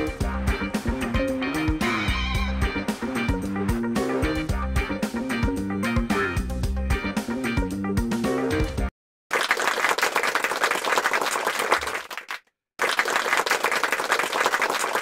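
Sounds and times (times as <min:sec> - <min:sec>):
crowd clapping: 0:09.3 - 0:15.0.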